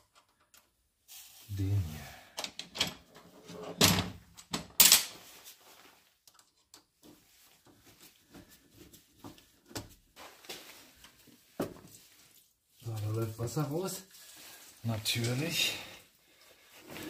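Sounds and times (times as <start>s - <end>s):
tools clattering: 2.5s - 5.3s.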